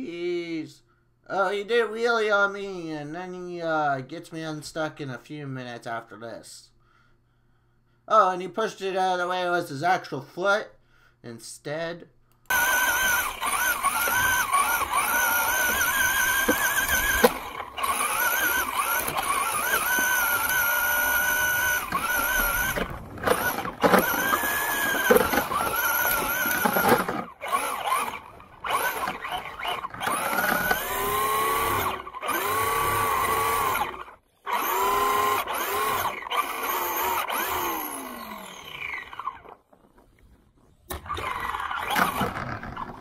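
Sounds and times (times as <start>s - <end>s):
electric rc car motor whining: 12.5s - 39.6s, 40.9s - 43.0s.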